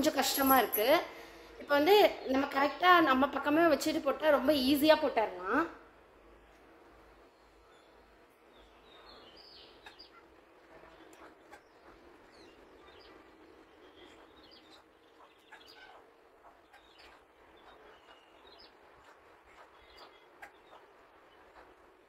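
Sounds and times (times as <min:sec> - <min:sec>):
faint bird chirps: 0:07.3 - 0:22.0.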